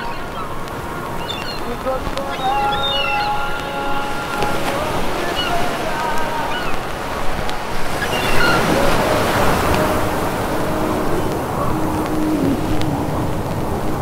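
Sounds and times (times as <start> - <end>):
faint chirps: 0.0 - 10.0
sea rushing: 0.0 - 14.0
wind: 0.0 - 14.0.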